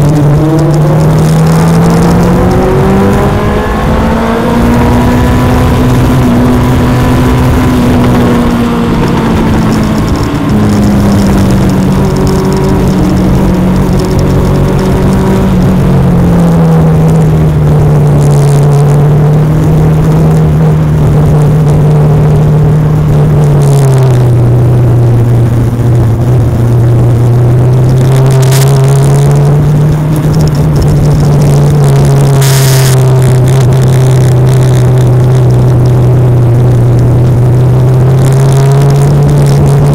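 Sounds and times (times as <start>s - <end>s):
race car engine running hard: 0.0s - 39.9s
wind noise: 0.0s - 39.9s.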